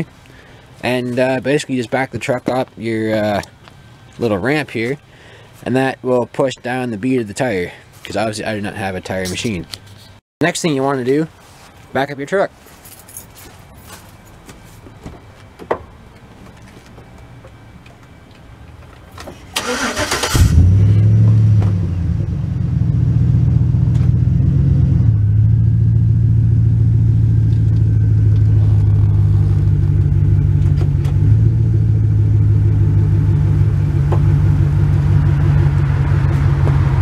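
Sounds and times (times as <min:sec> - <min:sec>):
truck engine starting and running: 0:17.8 - 0:37.0.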